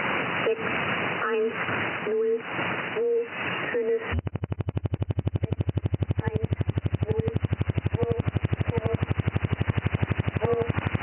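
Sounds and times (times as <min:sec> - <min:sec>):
synthetic female voice reading: 0:00.4 - 0:04.1, 0:10.4 - 0:10.7
pulsed buzzing radio interference: 0:03.8 - 0:11.0.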